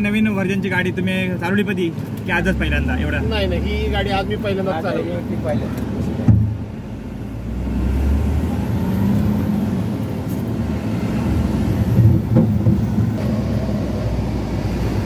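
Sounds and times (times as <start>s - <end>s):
short knock: 12.0s - 13.2s.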